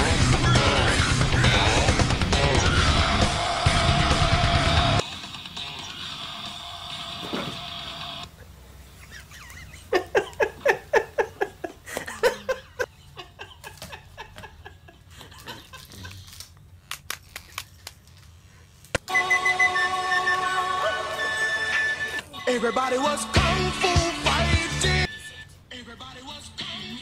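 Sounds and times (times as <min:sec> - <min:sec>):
pop music: 0:00.0 - 0:08.2, 0:19.1 - 0:27.0
person laughing: 0:09.0 - 0:16.4.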